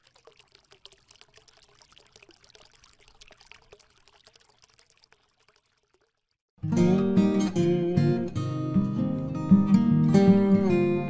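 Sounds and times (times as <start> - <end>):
faint trickling water: 0.0 - 6.5.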